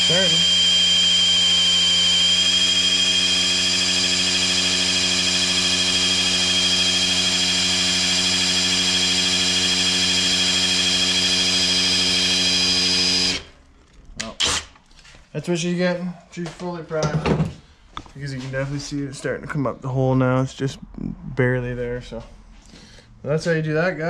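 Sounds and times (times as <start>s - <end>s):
electric drill whining: 0.0s - 13.6s, 14.3s - 14.8s.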